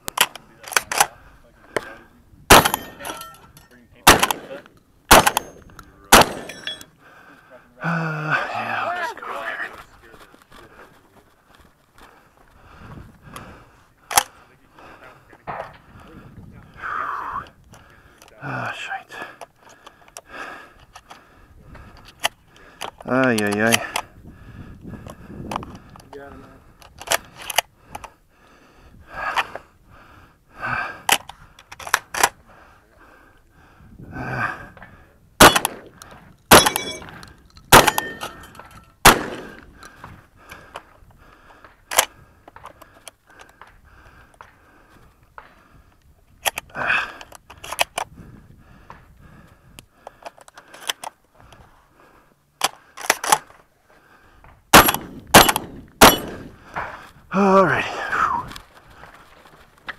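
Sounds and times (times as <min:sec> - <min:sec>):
shotgun handling clicks and clatter: 0:00.0 - 0:07.0, 0:13.3 - 0:14.5, 0:15.3 - 0:15.9, 0:17.5 - 0:18.4, 0:19.2 - 0:24.1, 0:25.0 - 0:28.2, 0:31.0 - 0:32.4, 0:34.8 - 0:51.8, 0:52.5 - 0:57.2, 0:58.4 - 0:59.9
shotgun shots: 0:02.5 - 0:03.2, 0:04.0 - 0:06.7, 0:35.4 - 0:37.1, 0:37.7 - 0:38.4, 0:39.0 - 0:39.8, 0:54.7 - 0:56.9
metallic ring of steel targets: 0:06.3 - 0:06.9, 0:36.5 - 0:37.1, 0:37.8 - 0:38.8, 0:54.8 - 0:56.4.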